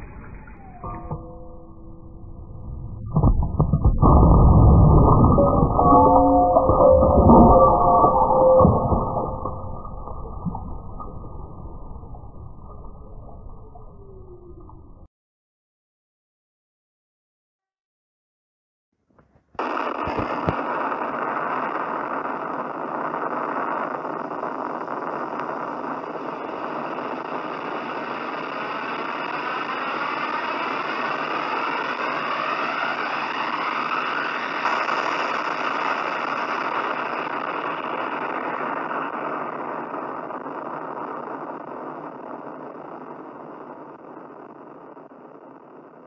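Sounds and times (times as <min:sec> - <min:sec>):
explosion roar: 0:00.0 - 0:15.1.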